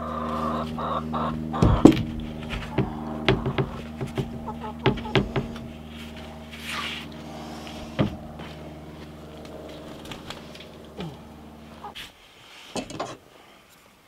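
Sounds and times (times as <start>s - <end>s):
steady low hum: 0.0s - 12.4s
wooden knocks: 1.6s - 5.7s
plywood scraping: 1.7s - 10.7s.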